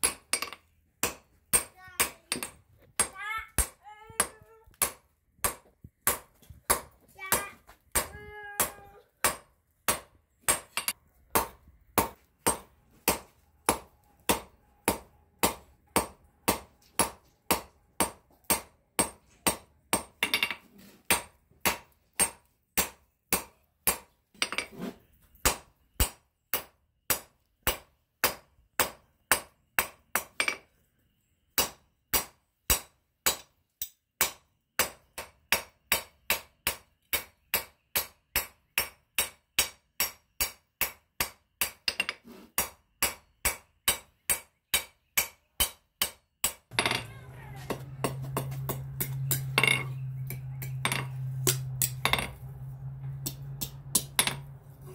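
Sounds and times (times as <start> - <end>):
hammer striking steel on anvil: 37.1 - 54.9.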